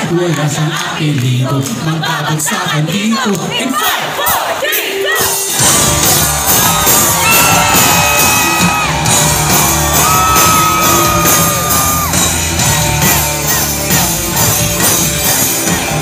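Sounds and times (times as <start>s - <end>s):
people shouting and whooping: 3.6s - 16.0s
live rock band playing: 5.0s - 16.0s.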